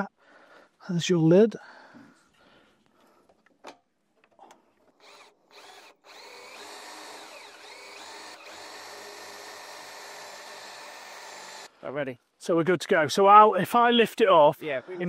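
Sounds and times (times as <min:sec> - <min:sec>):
cordless drill drilling wood: 0:05.0 - 0:11.7.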